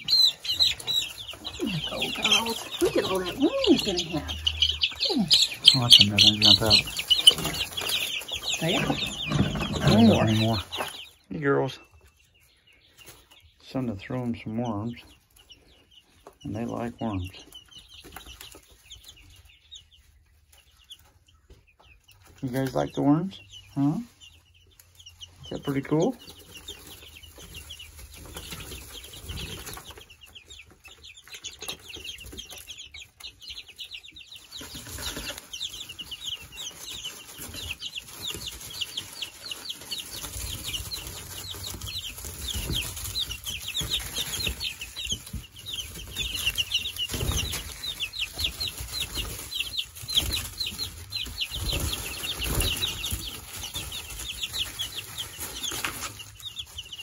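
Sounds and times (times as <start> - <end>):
feet scratching in wood shavings: 0.0 - 11.1
chicks peeping: 0.0 - 57.0
wings flapping: 0.7 - 10.5, 37.4 - 56.1.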